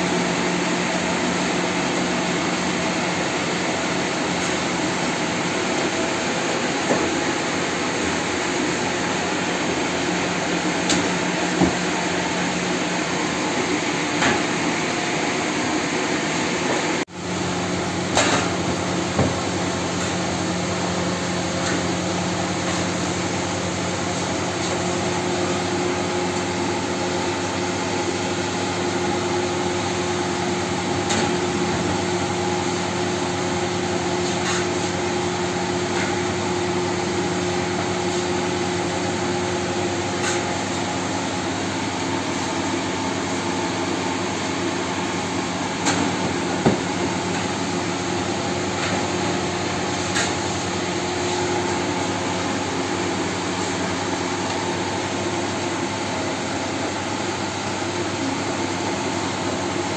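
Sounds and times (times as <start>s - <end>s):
bakery machinery roar and hum: 0.0s - 59.9s.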